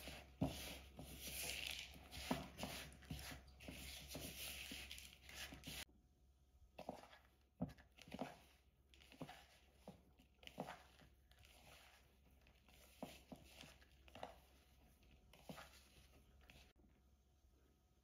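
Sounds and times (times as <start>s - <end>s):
fingers rubbing crumble mixture: 0.0s - 5.8s.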